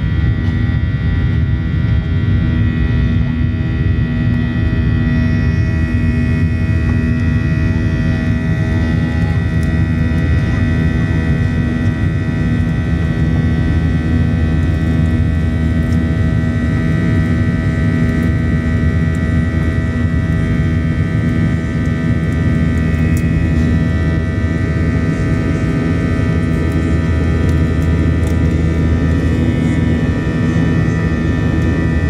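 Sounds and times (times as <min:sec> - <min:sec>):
jet engine and air rumble: 0:00.0 - 0:32.0
steady whining tones: 0:00.0 - 0:32.0.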